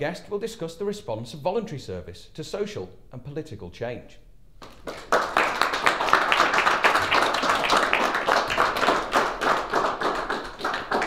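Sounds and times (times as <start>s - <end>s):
audience clapping: 4.6s - 11.0s.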